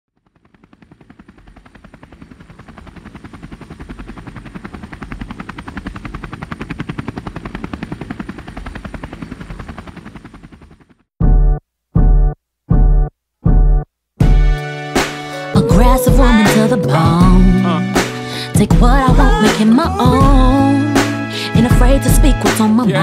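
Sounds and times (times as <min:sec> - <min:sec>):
helicopter rotor chopping: 0:00.1 - 0:11.1, 0:15.5 - 0:22.6.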